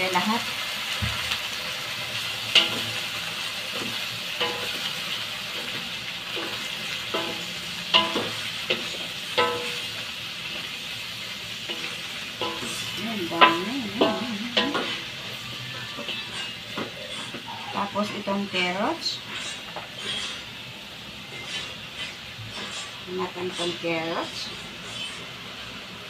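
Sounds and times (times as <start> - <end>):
vegetables sizzling in a wok: 0.0 - 26.0
spatula knocking on wok: 5.6 - 10.0, 11.6 - 15.0.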